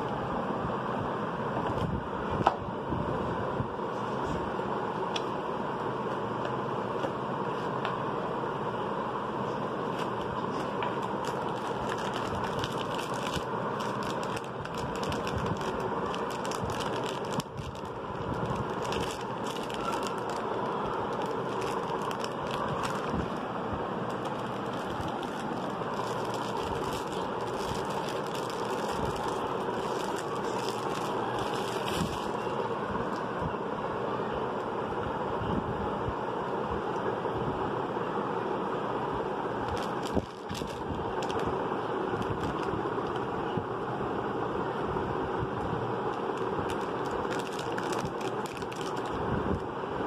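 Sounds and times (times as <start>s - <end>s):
steady background noise: 0.0s - 50.0s
plastic and cardboard crinkling: 9.9s - 33.3s, 39.6s - 43.3s, 46.1s - 49.7s.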